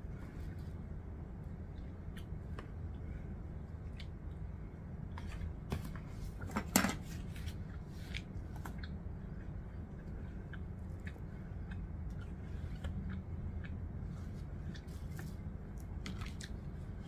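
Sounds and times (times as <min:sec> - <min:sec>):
low steady hum: 0:00.0 - 0:17.0
chewing and mouth sounds: 0:03.8 - 0:04.4, 0:07.6 - 0:17.0.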